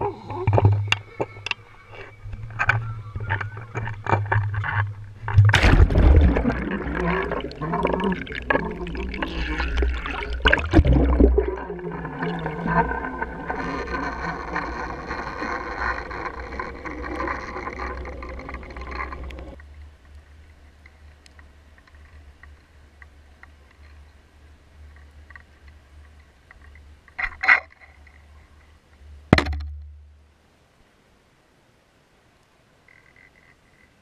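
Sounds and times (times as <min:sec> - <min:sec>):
churning water and bubbles: 0:00.0 - 0:19.6
low underwater rumble: 0:00.0 - 0:20.6
faint ticks: 0:13.5 - 0:29.2, 0:32.4 - 0:34.0.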